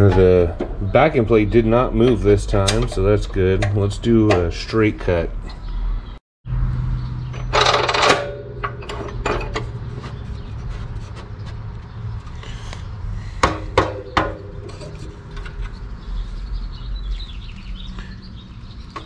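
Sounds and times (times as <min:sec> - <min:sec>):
sharp knocks on ringing pipe: 0:13.4 - 0:14.5.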